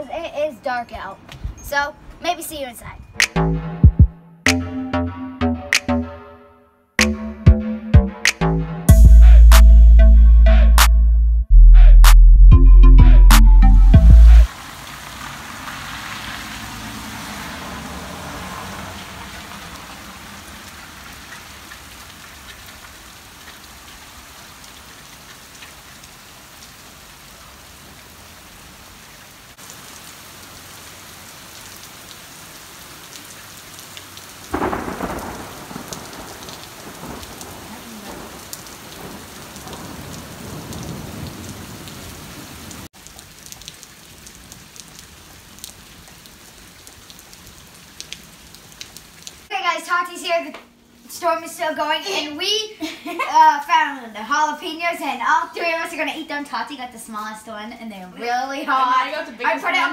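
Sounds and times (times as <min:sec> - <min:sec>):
steady rain falling: 0:14.0 - 0:59.9
loud thunder clap: 0:34.5 - 0:41.8
thunder rumbling: 0:34.5 - 0:42.9.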